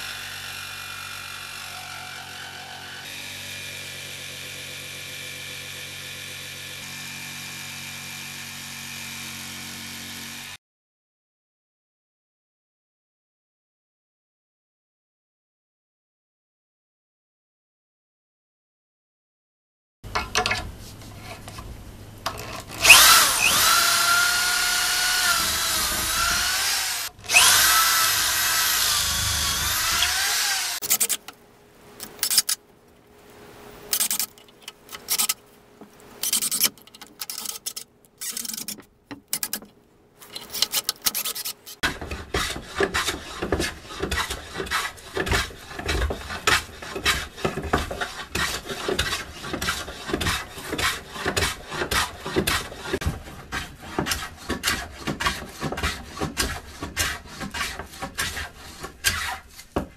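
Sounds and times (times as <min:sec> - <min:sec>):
hand plane shaving wood: 0:22.5 - 0:31.2, 0:33.9 - 0:35.4, 0:36.2 - 0:39.6, 0:40.2 - 0:59.9
cordless drill driving screws: 0:22.6 - 0:31.2.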